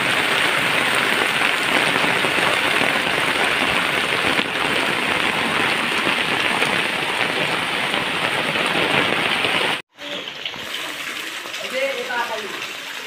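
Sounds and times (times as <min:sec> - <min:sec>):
heavy rain splashing into water: 0:00.0 - 0:13.0.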